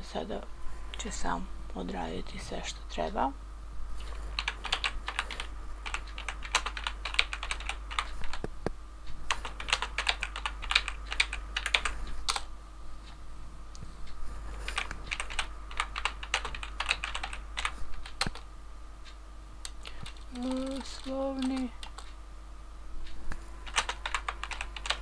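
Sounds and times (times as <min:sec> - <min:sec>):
typing on computer keyboard: 0:04.4 - 0:08.5, 0:09.3 - 0:12.5, 0:14.7 - 0:18.4, 0:19.6 - 0:22.1, 0:23.7 - 0:25.0.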